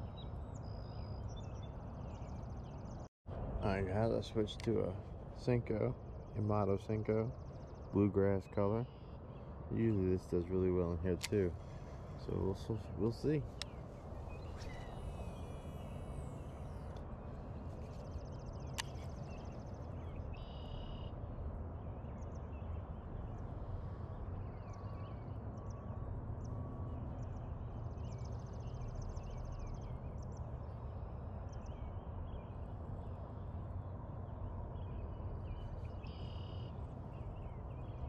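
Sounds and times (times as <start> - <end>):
low outdoor rumble: 0.0 - 38.0
small birds chirping and trilling: 0.0 - 38.0.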